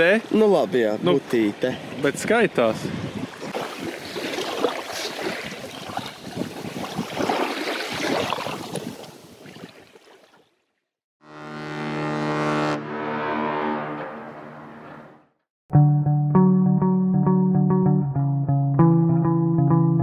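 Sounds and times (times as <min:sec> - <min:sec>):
sea surf: 0:00.0 - 0:10.2
wind: 0:00.0 - 0:11.0
wind buffeting microphone: 0:01.0 - 0:09.4.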